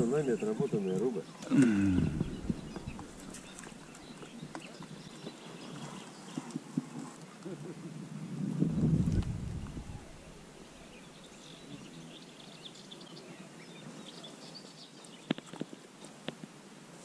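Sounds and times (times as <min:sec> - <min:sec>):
faint birdsong chirping: 0:00.0 - 0:16.4
low rumble: 0:01.9 - 0:04.2, 0:08.6 - 0:11.2.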